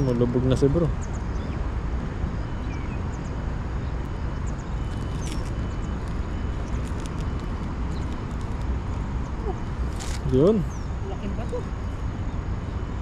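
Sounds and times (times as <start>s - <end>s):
wind rumble on microphone: 0.0s - 13.0s
faint bird chirps: 2.5s - 7.0s.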